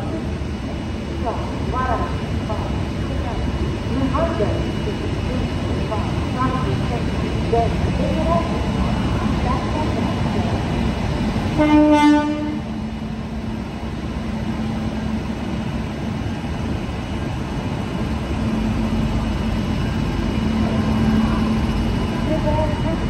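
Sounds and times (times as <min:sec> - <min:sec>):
electric train rumbling: 0:00.0 - 0:23.0
locomotive horn blast: 0:11.6 - 0:12.7.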